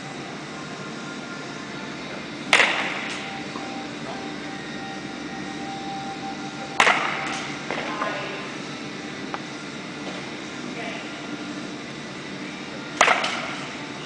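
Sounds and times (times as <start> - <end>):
baseball bat striking ball: 2.5 - 3.2, 6.8 - 7.9, 13.0 - 13.6.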